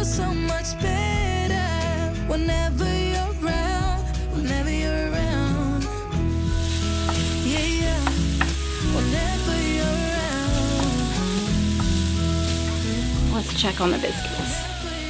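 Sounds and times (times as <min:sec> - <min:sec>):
background music: 0:00.0 - 0:15.0
sausage sizzling in a skillet: 0:06.3 - 0:15.0
wooden spoon scraping a pan: 0:06.6 - 0:09.6.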